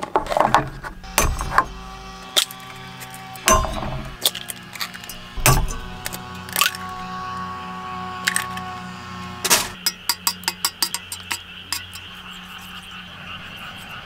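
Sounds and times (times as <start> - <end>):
eggs cracked against metal bowl: 9.8 - 12.1.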